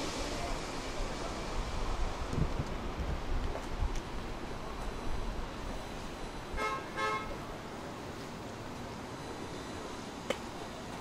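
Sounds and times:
vehicle horn toots: 0:06.6 - 0:07.4.

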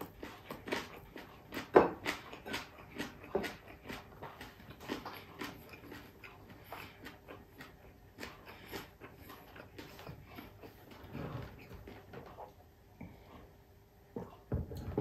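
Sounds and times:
person chewing crunchy food: 0:00.0 - 0:13.6.

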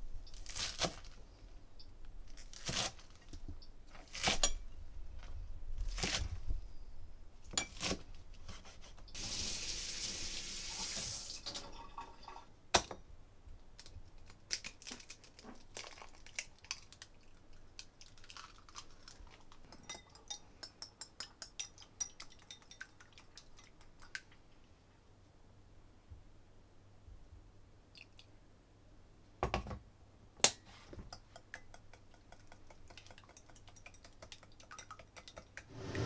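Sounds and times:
running water: 0:09.2 - 0:12.5.

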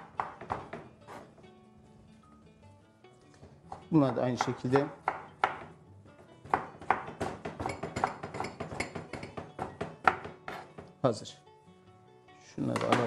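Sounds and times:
knife chopping on wooden board: 0:00.0 - 0:01.3, 0:03.4 - 0:10.9.

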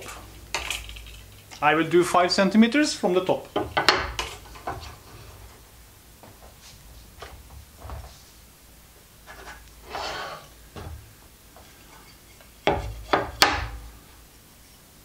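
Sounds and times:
wooden strips knocking on table: 0:03.5 - 0:04.9, 0:12.6 - 0:13.8
wood rubbing scrape: 0:03.5 - 0:05.6, 0:09.2 - 0:10.6.

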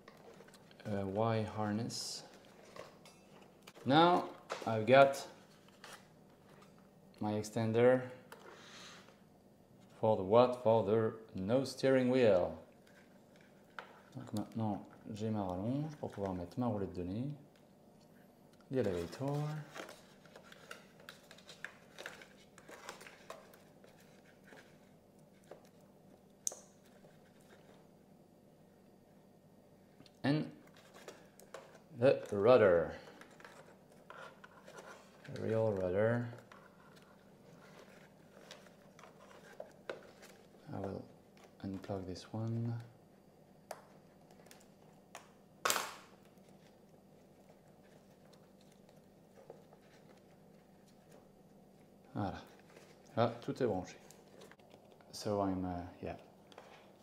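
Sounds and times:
handling rustle: 0:18.7 - 0:25.8, 0:30.6 - 0:42.8, 0:46.2 - 0:55.4.

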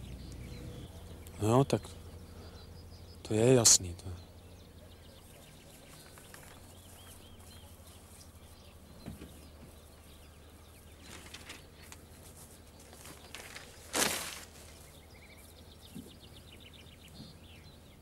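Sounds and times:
low steady hum: 0:00.0 - 0:18.0
soft rustles: 0:05.7 - 0:08.6, 0:10.9 - 0:15.6.

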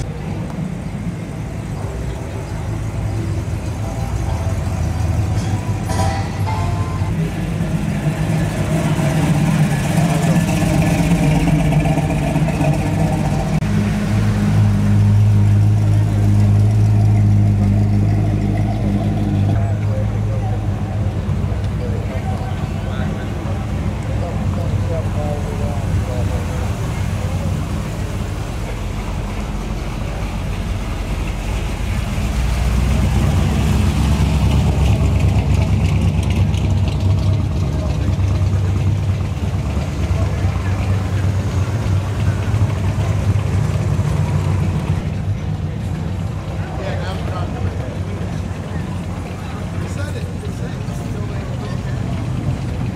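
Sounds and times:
car engine rumbling past: 0:00.0 - 0:52.9.

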